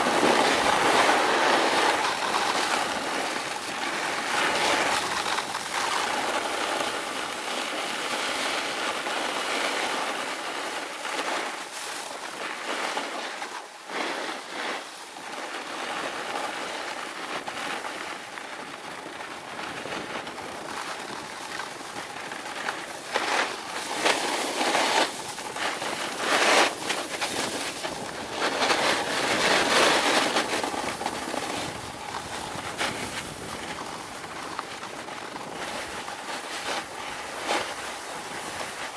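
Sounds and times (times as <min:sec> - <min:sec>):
snowboard scraping over snow: 0:00.0 - 0:38.9.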